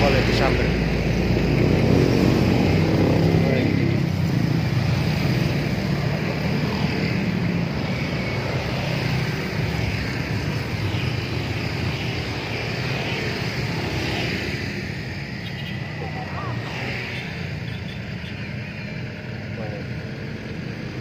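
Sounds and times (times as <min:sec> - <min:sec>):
passing engine drone: 0:00.0 - 0:21.0.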